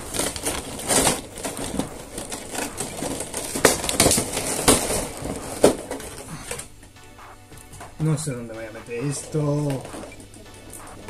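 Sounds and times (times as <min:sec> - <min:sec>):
packaging crinkling and cracking: 0:00.0 - 0:06.3.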